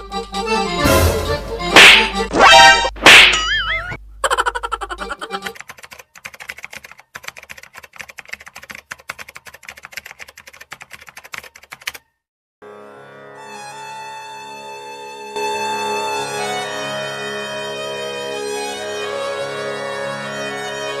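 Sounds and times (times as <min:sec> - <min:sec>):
string music: 0:00.0 - 0:03.0, 0:12.6 - 0:21.0
keyboard typing clicks: 0:05.5 - 0:12.0.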